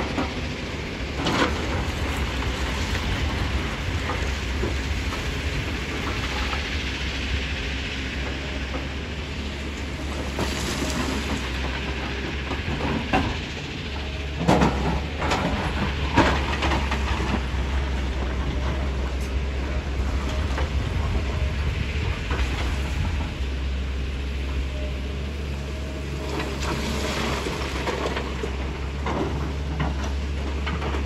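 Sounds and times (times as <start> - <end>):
excavator diesel engine running: 0.0 - 31.0.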